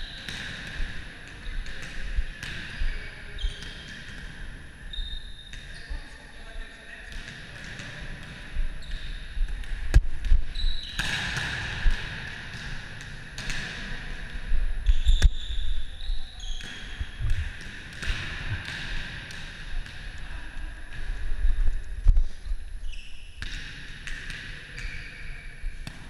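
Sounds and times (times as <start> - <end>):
hands hitting volleyball: 16.6 - 20.3.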